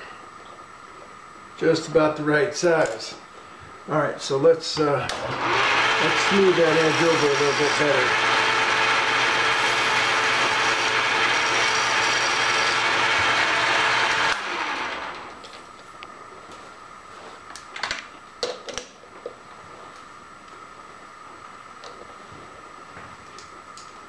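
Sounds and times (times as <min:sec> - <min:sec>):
faint steady hum: 0:00.0 - 0:05.4, 0:14.3 - 0:24.0
metal lathe scraping: 0:05.3 - 0:15.2.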